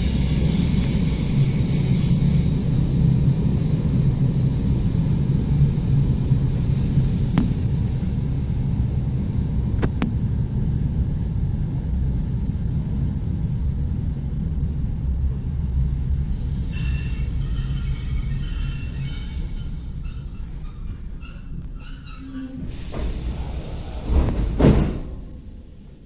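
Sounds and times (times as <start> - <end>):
train wheels rumbling: 0.0 - 26.0
high-pitched squeal: 16.1 - 24.0.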